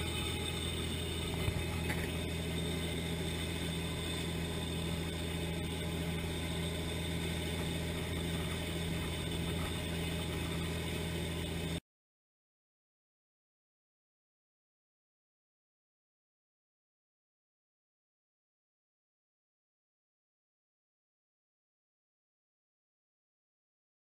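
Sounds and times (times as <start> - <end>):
boat engine humming: 0.0 - 11.8.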